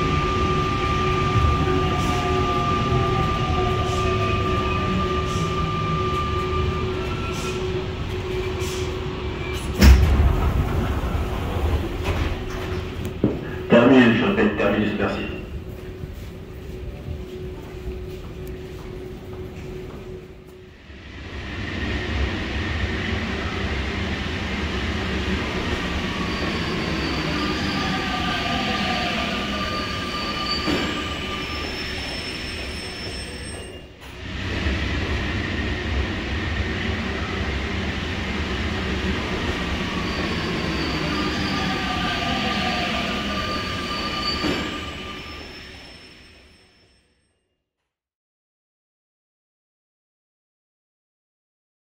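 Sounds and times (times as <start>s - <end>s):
metro train rumbling: 0.0s - 47.0s
wheels squealing: 39.3s - 46.9s.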